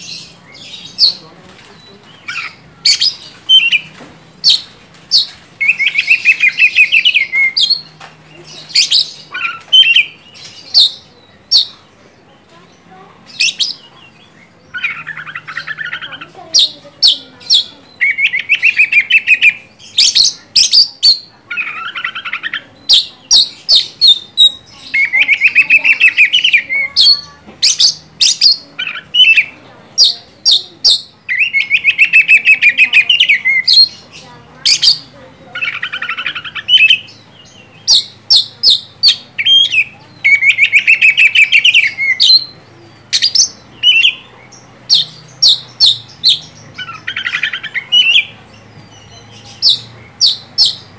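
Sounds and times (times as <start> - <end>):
songbird singing whistles and trills: 2.2 - 11.8, 13.3 - 34.0, 34.7 - 50.9.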